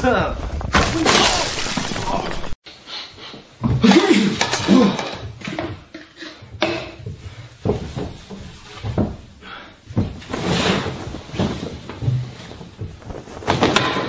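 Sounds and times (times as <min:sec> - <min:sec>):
cloth being shaken out: 0:10.3 - 0:13.6.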